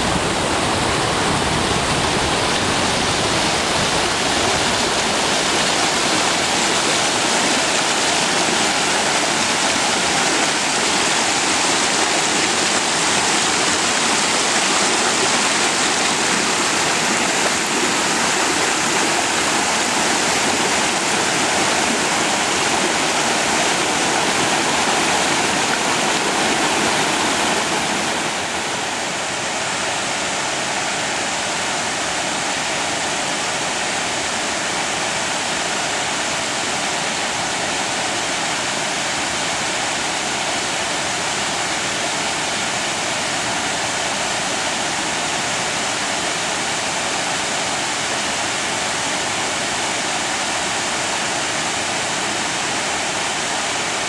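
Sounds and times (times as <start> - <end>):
creek water rushing over rocks: 0.0 - 54.0.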